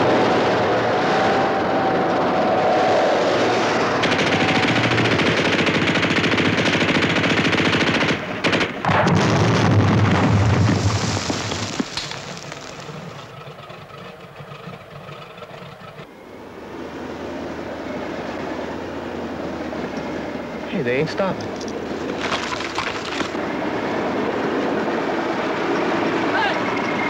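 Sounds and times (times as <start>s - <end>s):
tank engine and tracks: 0.0s - 27.0s
rapid machine-gun fire: 4.0s - 10.6s
explosion with low rumble: 8.8s - 13.3s.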